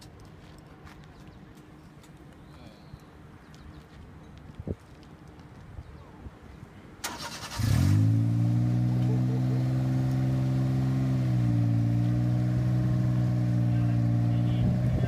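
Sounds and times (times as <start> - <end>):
car engine starting and idling: 7.0 - 15.0.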